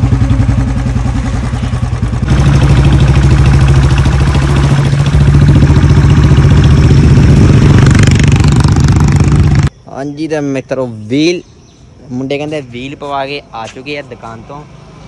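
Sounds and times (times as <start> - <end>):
motorcycle engine pulsing exhaust: 0.0 - 9.7.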